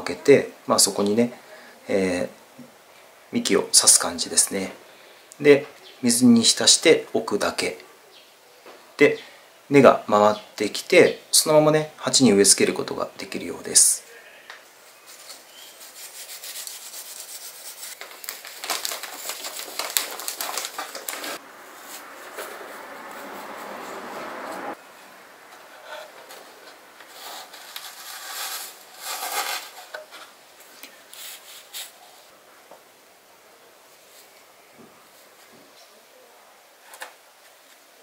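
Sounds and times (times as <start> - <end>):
skewer scraping rockwool cubes: 27.0 - 30.3.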